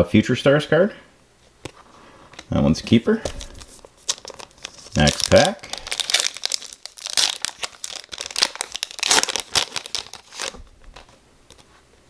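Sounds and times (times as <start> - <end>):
foil wrapper tearing and crinkling: 3.4 - 11.1.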